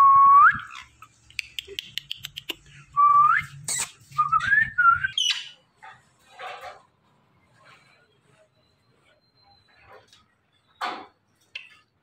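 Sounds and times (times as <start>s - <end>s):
parakeet whistling: 3.2s - 5.6s.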